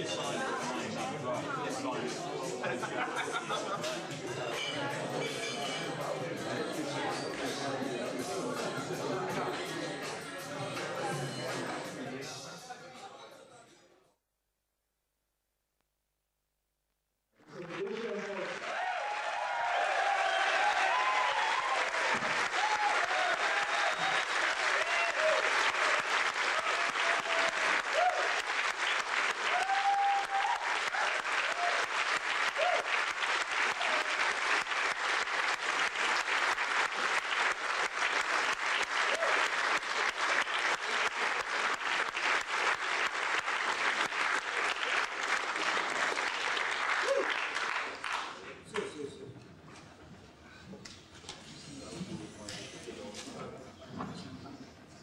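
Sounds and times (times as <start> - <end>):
audience applause: 17.4 - 48.5.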